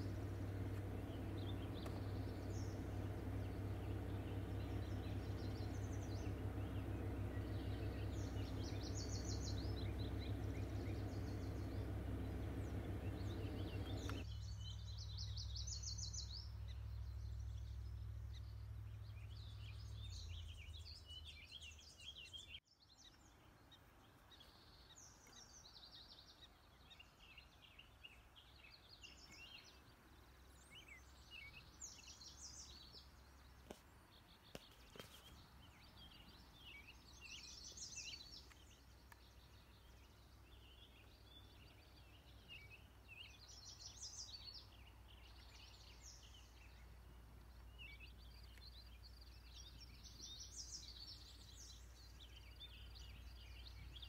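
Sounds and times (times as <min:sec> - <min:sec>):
low steady rumble: 0:00.0 - 0:22.6, 0:35.4 - 0:54.0
songbirds chirping and singing: 0:00.0 - 0:54.0.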